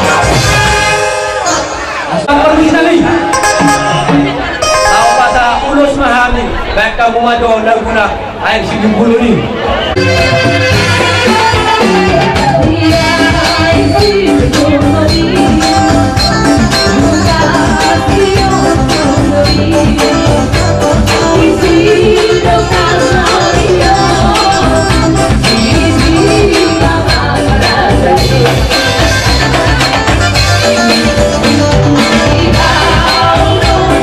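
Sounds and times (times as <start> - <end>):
dance music with percussion: 10.0 - 34.0.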